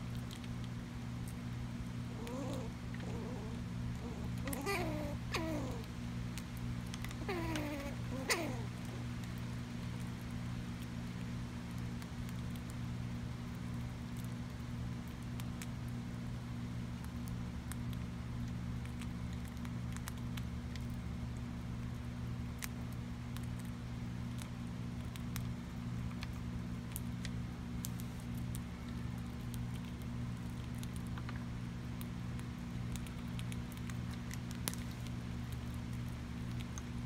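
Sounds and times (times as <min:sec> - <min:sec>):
squirrel gnawing and crunching food: 0:00.0 - 0:37.0
steady low hum: 0:00.0 - 0:37.0.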